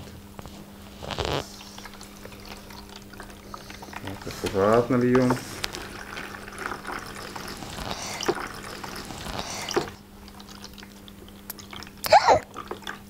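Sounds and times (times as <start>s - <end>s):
water splashing into plastic basin: 1.4s - 10.0s.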